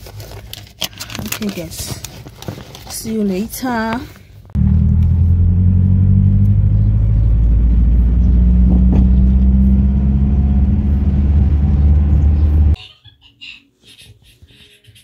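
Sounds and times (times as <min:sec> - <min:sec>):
car engine and road noise drone: 0:04.5 - 0:12.8.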